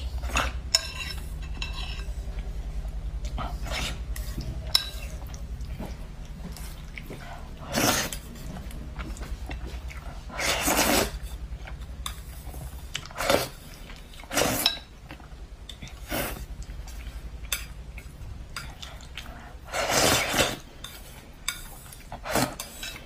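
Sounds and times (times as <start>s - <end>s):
low steady hum: 0.0s - 23.0s
noodles slurped: 10.2s - 11.2s.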